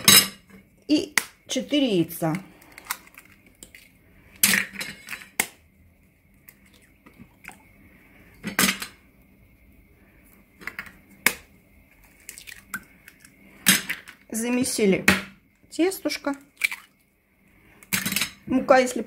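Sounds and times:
eggshells cracking: 2.5 - 4.6, 10.7 - 14.3.

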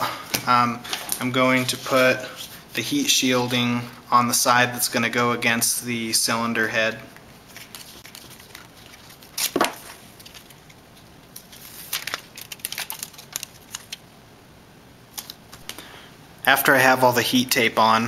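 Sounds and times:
foil tape crinkling: 7.5 - 14.1, 15.1 - 15.7
tape ripping: 7.6 - 14.0.

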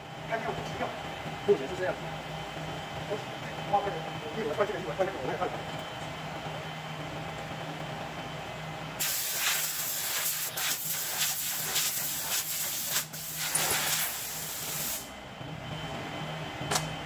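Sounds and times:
rushing hiss of air: 9.0 - 15.1.

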